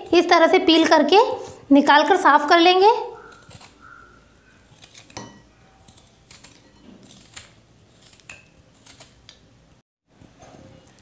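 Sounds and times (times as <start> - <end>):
peeler scraping coconut: 3.2 - 9.4.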